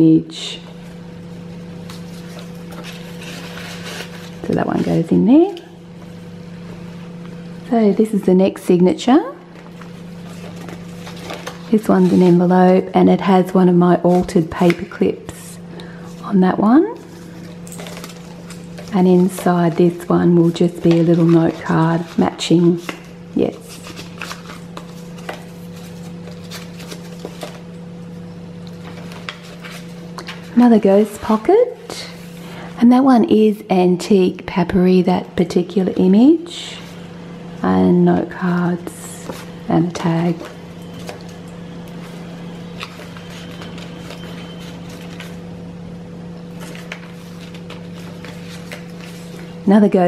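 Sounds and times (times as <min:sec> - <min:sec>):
paper rustling: 0:01.7 - 0:04.9, 0:09.5 - 0:12.8, 0:15.8 - 0:27.7, 0:28.7 - 0:32.6, 0:39.2 - 0:45.5, 0:46.4 - 0:49.6.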